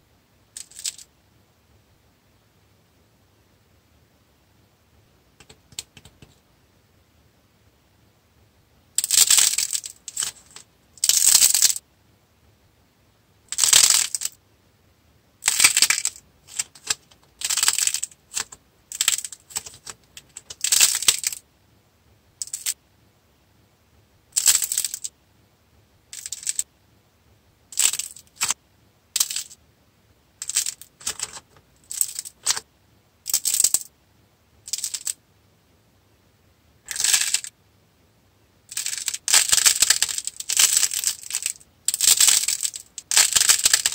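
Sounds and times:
clay cracking and crackling: 15.4 - 21.4, 22.4 - 22.8, 27.8 - 28.6, 30.4 - 32.7, 38.7 - 43.9.

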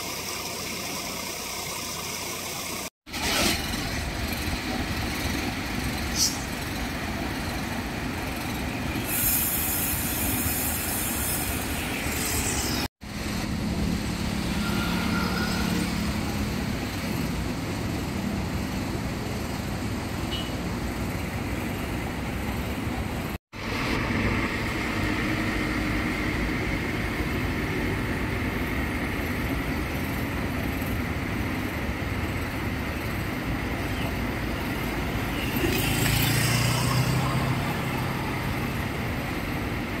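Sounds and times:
diesel bus engine running: 0.0 - 40.0
vehicle noise: 0.0 - 40.0
loud hiss: 7.7 - 12.9.

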